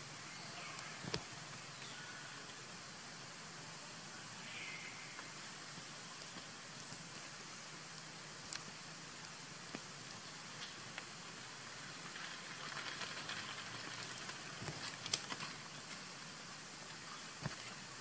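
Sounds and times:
rainwater dripping and pattering: 5.1s - 18.0s.

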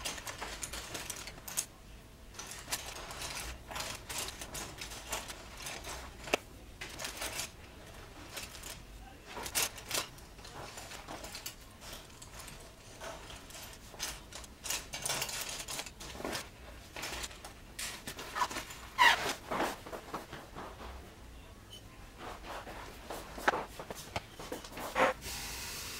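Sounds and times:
paintbrushes clicking and rattling: 0.0s - 20.7s
cloth rustling: 0.0s - 21.3s.

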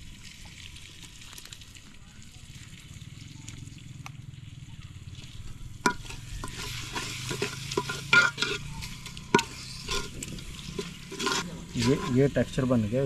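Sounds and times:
ladle stirring and scraping: 5.2s - 12.7s
food sizzling in a pot: 5.2s - 13.0s
ladle clinking against pot: 5.8s - 12.1s.

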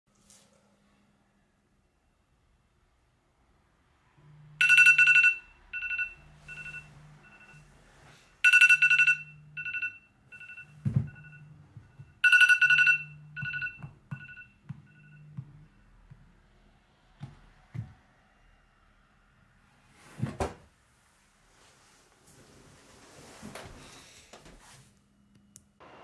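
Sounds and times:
phone alarm two-pitch tones: 4.6s - 7.7s, 8.4s - 16.0s.

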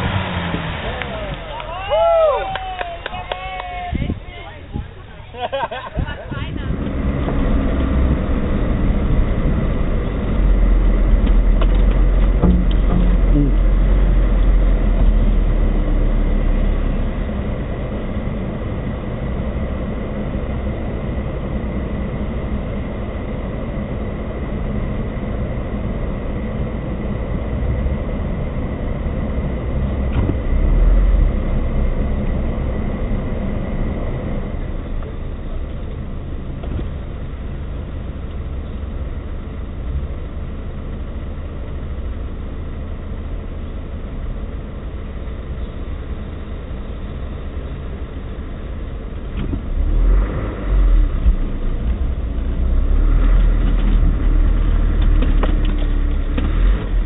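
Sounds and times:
car engine running at low speed: 0.0s - 57.0s
short knocks: 11.6s - 13.6s.

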